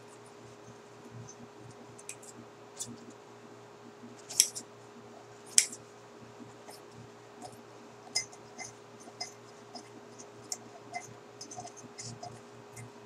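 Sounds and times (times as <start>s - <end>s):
scissors snipping paper towel: 4.2s - 4.6s.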